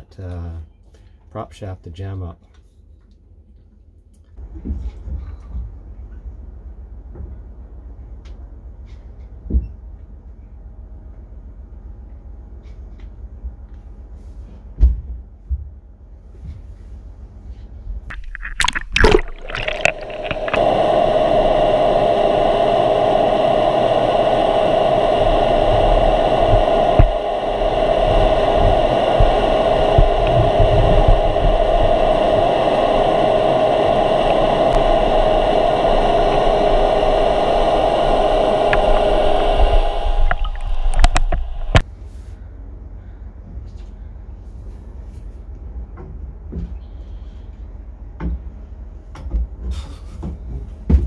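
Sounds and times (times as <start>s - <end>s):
low rumble: 18.1s - 41.8s
underwater hiss and hum: 18.1s - 41.8s.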